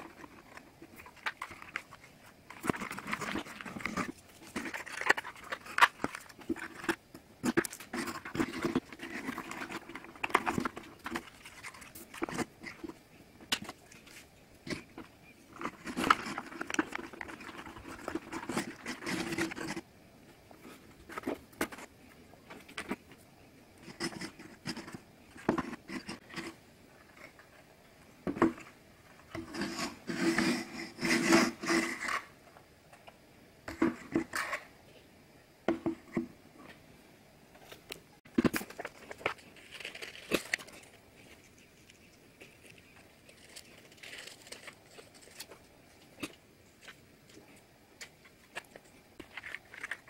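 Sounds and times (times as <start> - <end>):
board pieces scraping and clicking: 0.1 - 19.8, 29.3 - 32.4, 48.0 - 50.0.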